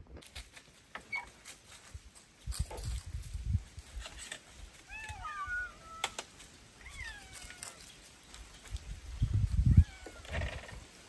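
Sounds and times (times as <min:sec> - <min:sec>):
cat meowing: 0:04.9 - 0:06.2, 0:06.8 - 0:07.9, 0:09.7 - 0:10.5.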